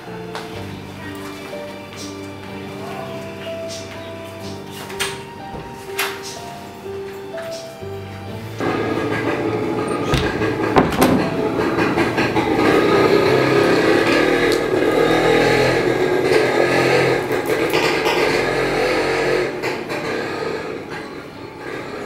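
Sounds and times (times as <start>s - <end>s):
sharp knocks: 8.6s - 13.7s.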